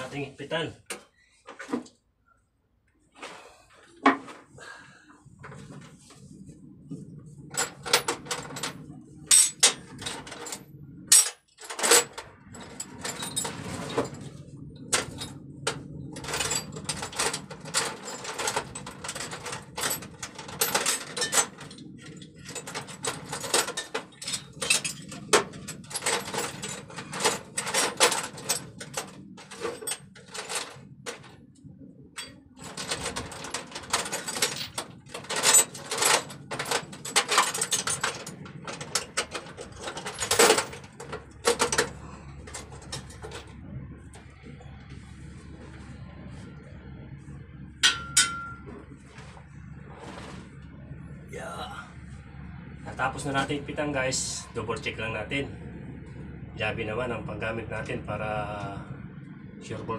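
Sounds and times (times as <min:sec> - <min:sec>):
low steady hum: 0:00.0 - 0:59.9
metal tools clinking: 0:07.5 - 0:14.3, 0:14.9 - 0:31.3, 0:32.2 - 0:43.5, 0:47.8 - 0:48.7.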